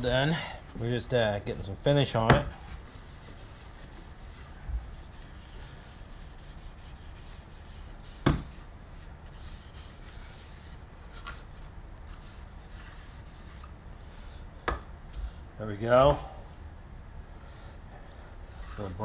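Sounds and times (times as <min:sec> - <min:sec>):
wood knocking on workbench: 0:02.2 - 0:02.5, 0:08.2 - 0:08.5, 0:14.6 - 0:14.8.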